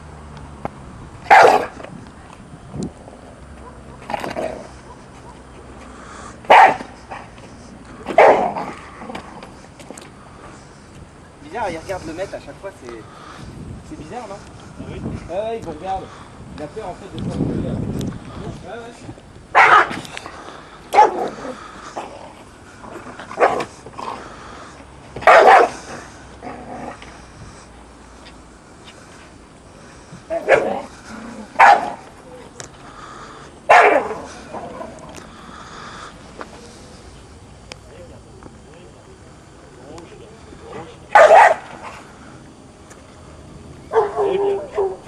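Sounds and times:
dog barking: 0:01.3 - 0:01.8, 0:03.6 - 0:04.1, 0:04.8 - 0:05.4, 0:06.5 - 0:06.9, 0:08.2 - 0:08.6, 0:19.6 - 0:19.9, 0:21.0 - 0:21.4, 0:25.2 - 0:25.8, 0:31.6 - 0:32.0, 0:33.7 - 0:34.2, 0:41.1 - 0:41.7, 0:43.9 - 0:45.0.

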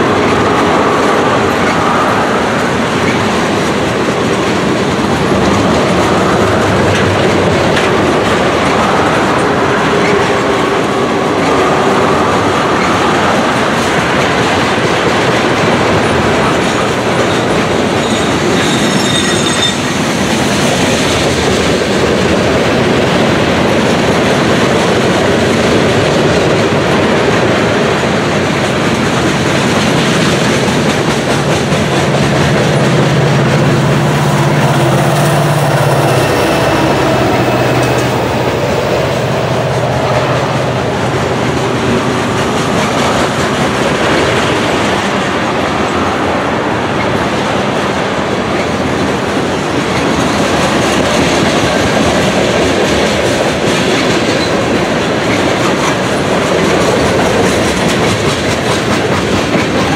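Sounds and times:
diesel locomotive engine hum: 0:00.0 - 0:59.9
train wheels clickety-clack: 0:00.0 - 0:59.9
high wheel squeal: 0:17.3 - 0:20.1.

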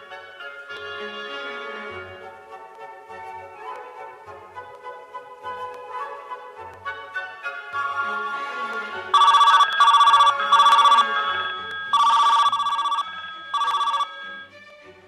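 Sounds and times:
telephone bell ringing: 0:09.2 - 0:14.5.

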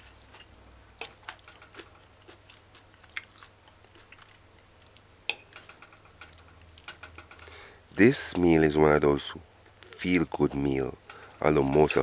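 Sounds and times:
person chewing food: 0:00.0 - 0:05.5.

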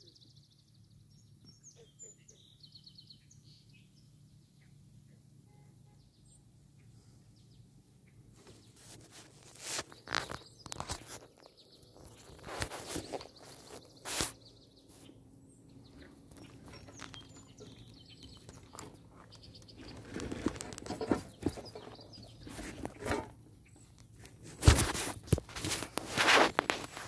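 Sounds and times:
sharp camera bumps: 0:08.4 - 0:14.4, 0:19.8 - 0:23.4, 0:24.2 - 0:27.0
camera handling rustling: 0:08.8 - 0:11.4, 0:12.1 - 0:14.4.

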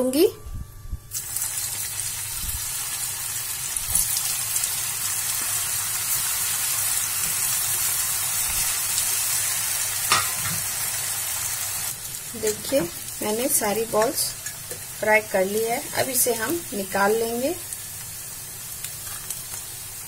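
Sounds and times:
sharp oil crackles: 0:01.1 - 0:09.4
food deep-frying in hot oil: 0:01.1 - 0:20.0.

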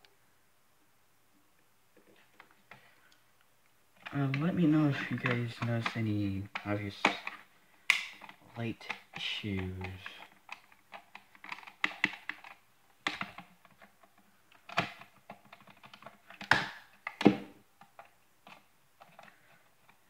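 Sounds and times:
plastic clicks and light knocks: 0:04.0 - 0:20.0.

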